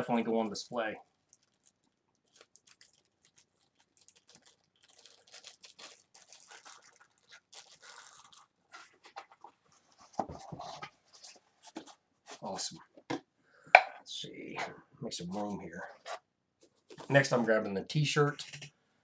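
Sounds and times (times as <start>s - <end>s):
plastic packaging crinkling: 0.0s - 12.5s.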